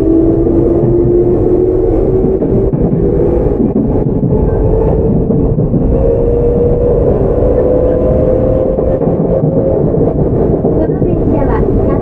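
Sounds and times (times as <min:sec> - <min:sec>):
train motor whine: 0:00.0 - 0:12.0
train wheels rumbling on rails: 0:00.0 - 0:12.0.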